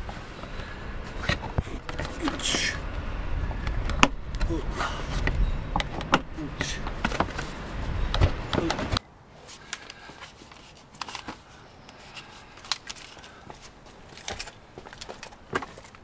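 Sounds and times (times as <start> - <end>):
handling rustles: 6.9 - 16.0.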